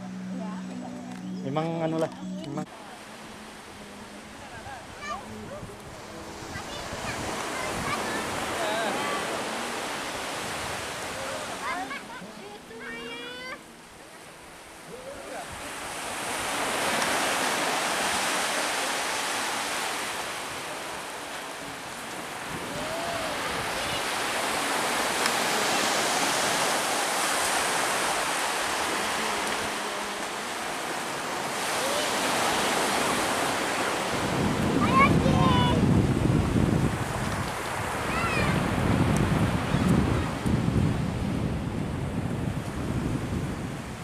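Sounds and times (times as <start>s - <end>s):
sea surf washing onto beach: 0.0s - 44.0s.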